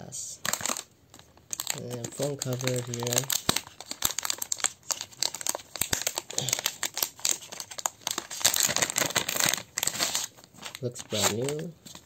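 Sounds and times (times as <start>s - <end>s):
packaging crinkling: 0.4s - 12.0s
packaging tearing: 0.4s - 12.0s.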